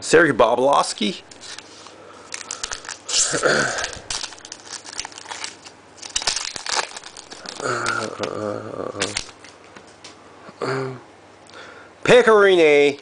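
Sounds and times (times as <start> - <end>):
cards rustling: 1.3 - 8.4, 9.0 - 9.6
foil wrapper crinkling and tearing: 1.3 - 9.5.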